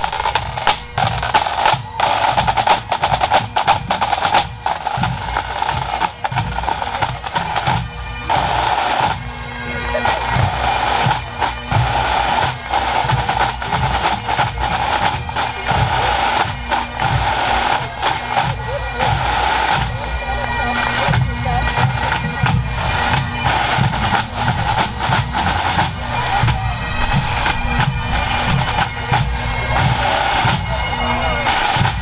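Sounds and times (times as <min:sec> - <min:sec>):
snare drum rolls: 0:00.0 - 0:09.2
bagpipes with drones: 0:00.0 - 0:32.0.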